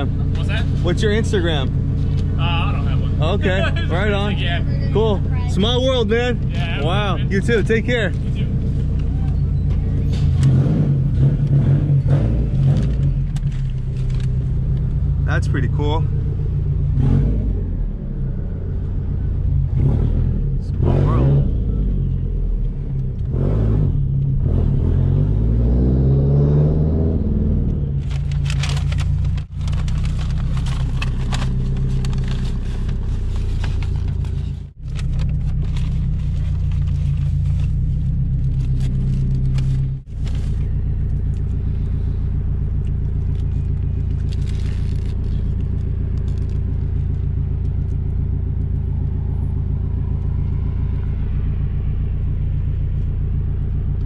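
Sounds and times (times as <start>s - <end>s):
car engine idling: 0.0s - 23.3s, 27.7s - 54.0s
paper wrapper crinkling: 28.0s - 37.8s, 43.3s - 46.6s.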